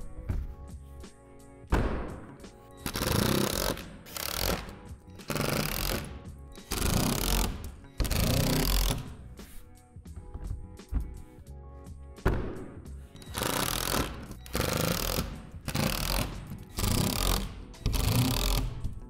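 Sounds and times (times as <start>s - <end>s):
power drill driving screws: 2.8s - 9.0s, 13.2s - 18.7s.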